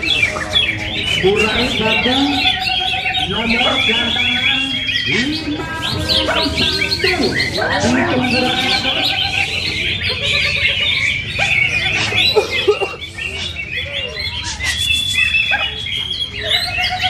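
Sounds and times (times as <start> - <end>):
songbirds chirping and whistling: 0.0 - 17.0
long steady bird whistle: 10.9 - 17.0.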